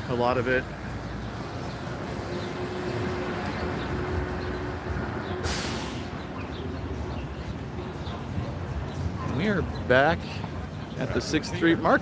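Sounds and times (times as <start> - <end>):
rumble of passing vehicles: 0.0 - 12.0
short sharp hiss: 5.4 - 6.1.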